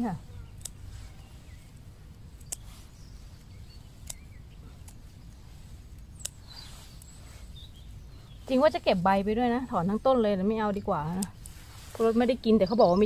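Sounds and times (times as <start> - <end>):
faint bird chirps: 0.0 - 10.9
sharp clicks: 2.4 - 2.7, 3.8 - 5.4.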